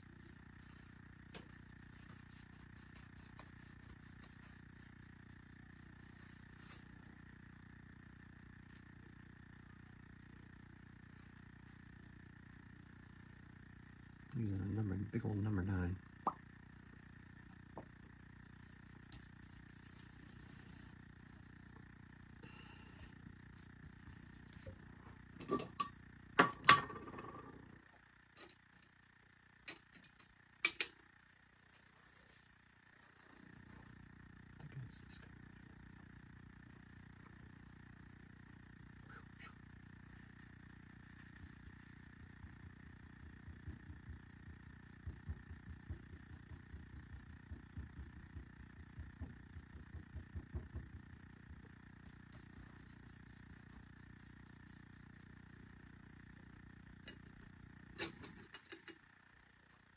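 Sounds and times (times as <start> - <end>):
low room hum: 0.0 - 59.9.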